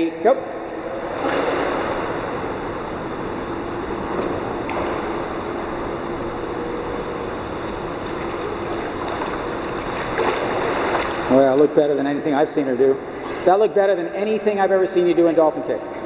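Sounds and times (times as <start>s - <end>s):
steady low hum: 0.0s - 16.0s
water churning and lapping: 0.7s - 3.0s, 3.9s - 13.8s.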